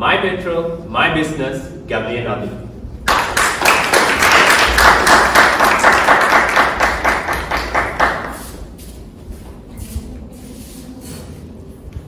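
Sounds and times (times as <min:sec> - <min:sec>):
audience applauding: 0:03.0 - 0:08.4.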